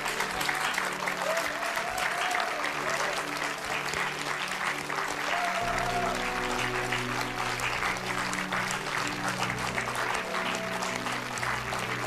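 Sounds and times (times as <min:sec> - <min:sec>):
audience applauding: 0:00.0 - 0:12.0
background music: 0:00.0 - 0:12.0.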